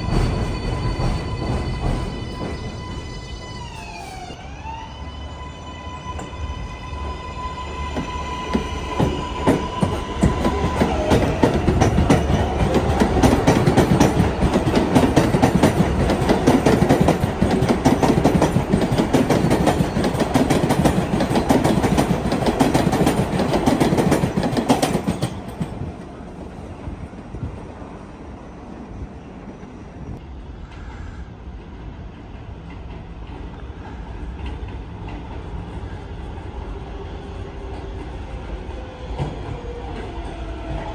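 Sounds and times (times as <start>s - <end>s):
train wheels clattering over rail joints: 8.6s - 25.9s.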